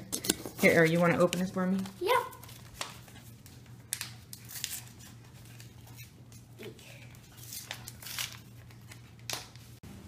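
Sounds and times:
paper envelope tearing: 1.8s - 6.1s, 7.2s - 9.6s.

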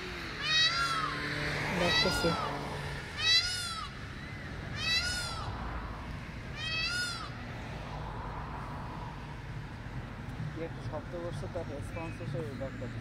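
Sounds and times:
peacock calling: 0.0s - 7.8s.

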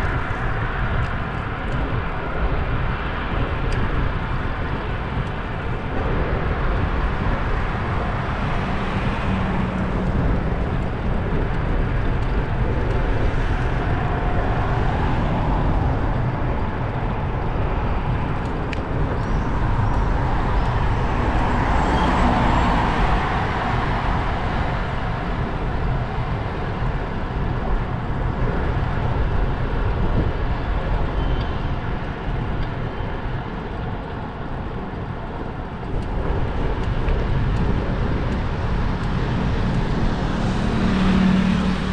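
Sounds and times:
deep rumble: 0.0s - 41.9s
vehicle road noise: 0.0s - 41.9s
wind rush: 0.0s - 41.9s.

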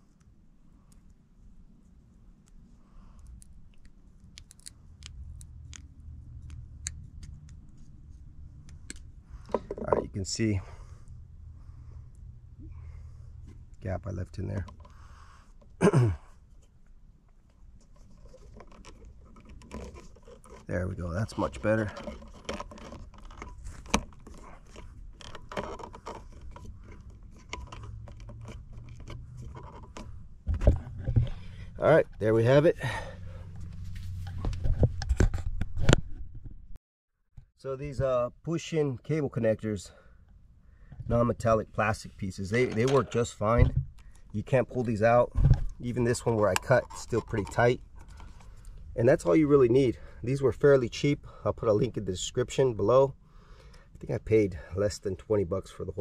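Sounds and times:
handling rustle: 17.4s - 32.6s, 41.1s - 49.8s.

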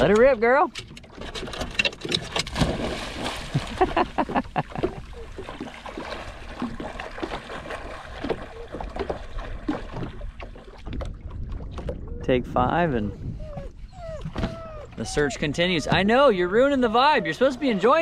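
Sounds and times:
water lapping at boat hull: 0.0s - 18.0s
dog splashing through water: 2.3s - 10.9s.

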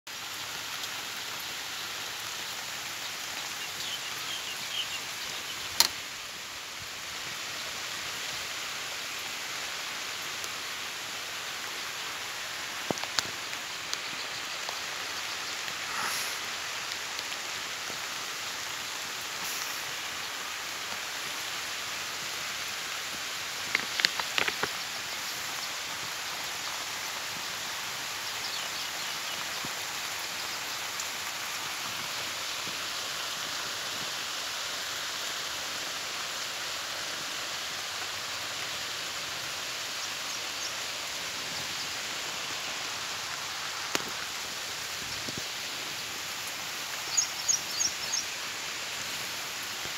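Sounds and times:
steady rain on leafy crops: 0.0s - 49.9s
sharp taps of raindrops: 5.7s - 6.1s, 12.7s - 14.9s, 23.0s - 26.2s, 43.7s - 45.6s.

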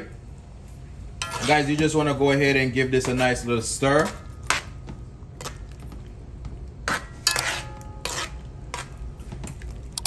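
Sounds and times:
metal ladle scraping a pot: 1.2s - 1.9s, 6.9s - 8.9s.

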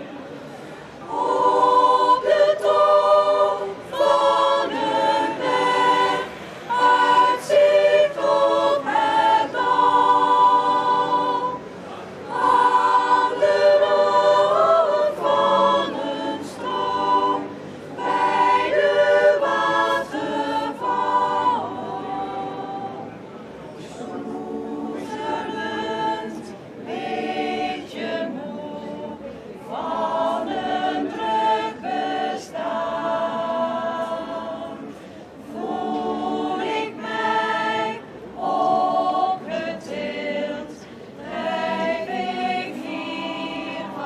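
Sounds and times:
choir singing a cappella: 0.0s - 44.0s.

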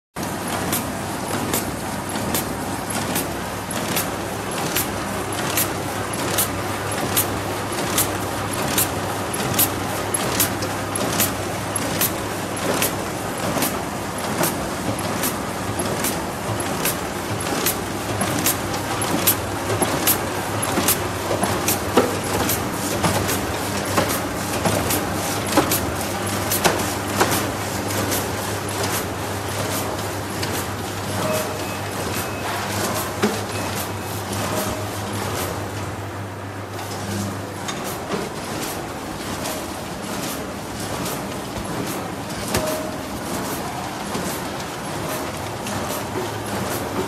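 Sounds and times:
machine running: 0.2s - 47.0s
sharp machine clicks: 0.4s - 34.8s.

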